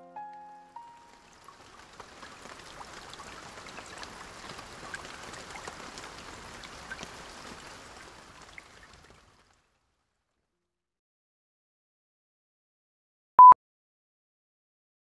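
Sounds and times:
rain falling: 0.0 - 10.0.

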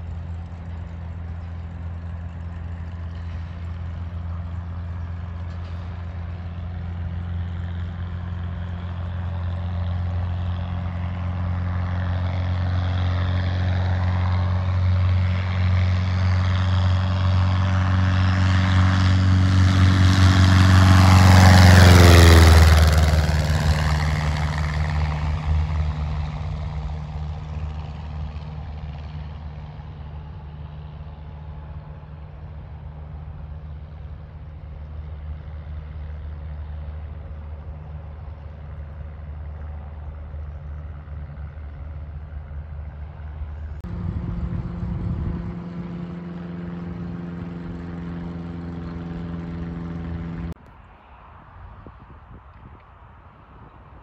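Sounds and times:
airplane engine and propeller: 0.0 - 54.0.

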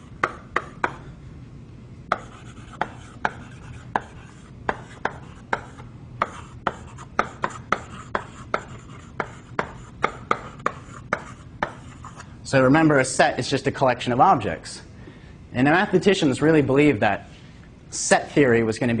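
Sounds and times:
chalk tapping on blackboard: 0.0 - 1.1, 2.1 - 12.2.

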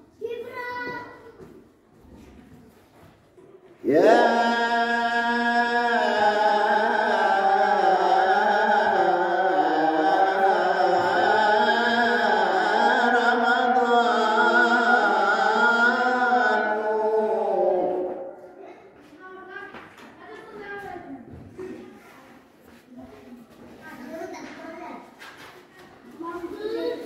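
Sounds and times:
man singing a hymn: 3.8 - 18.4.

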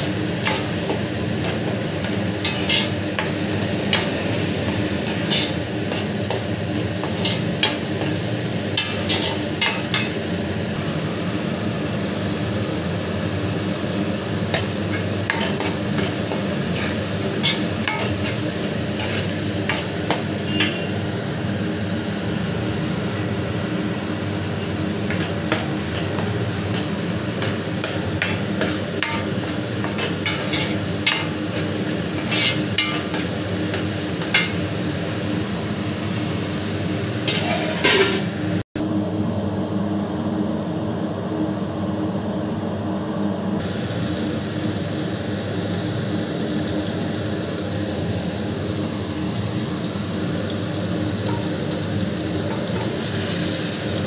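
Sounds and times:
masala sizzling in a pan: 0.0 - 38.6, 43.6 - 54.0
spatula scraping and knocking pan: 14.6 - 20.7, 25.1 - 34.6.

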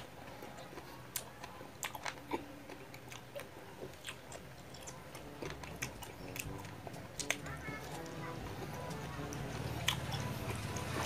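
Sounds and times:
biting and chewing mango: 0.0 - 11.0
wet mouth clicks: 0.5 - 8.1.

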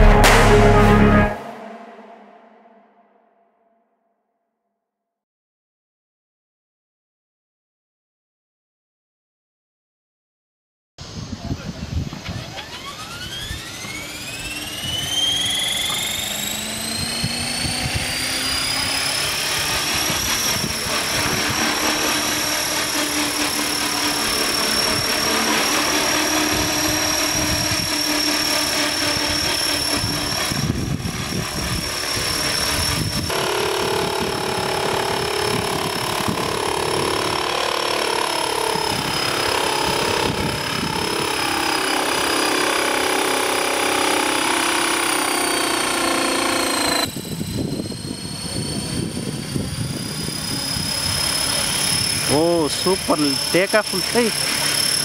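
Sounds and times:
model helicopter motor whining: 12.1 - 55.0.

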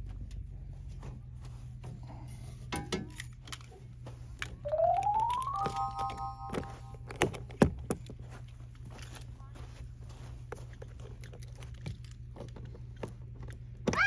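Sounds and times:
electronic tone rising: 4.7 - 7.0.

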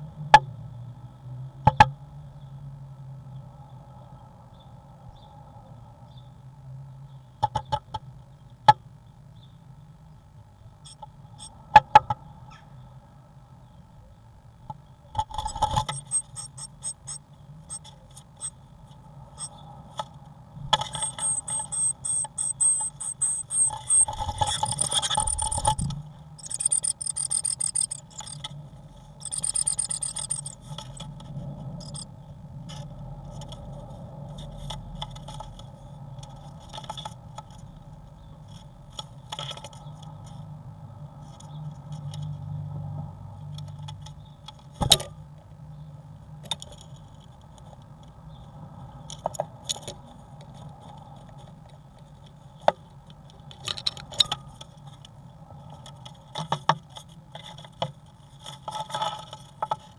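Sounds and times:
steady low hum: 0.0 - 59.9
claws scratching on wood: 15.2 - 18.6, 20.7 - 28.6, 29.2 - 32.1.

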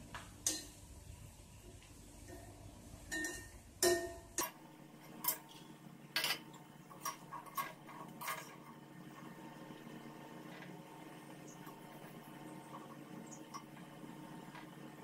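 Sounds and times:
metal ladle clinking on iron pan: 3.1 - 8.6.

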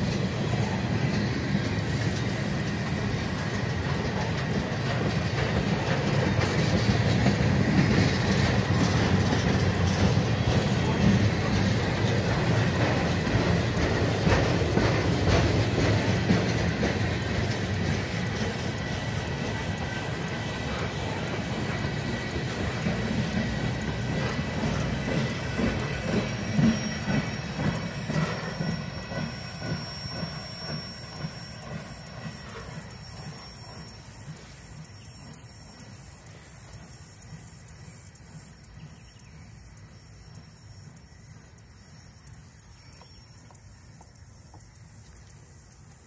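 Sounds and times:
train wheels clacking on rails: 0.0 - 46.0
thin wheel squeal: 25.2 - 36.0.

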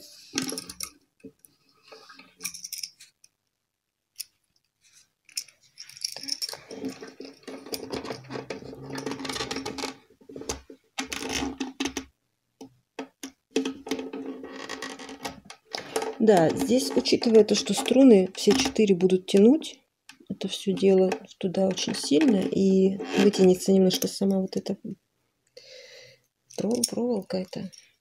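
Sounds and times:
small metallic clicks: 2.4 - 3.4, 4.1 - 8.3.

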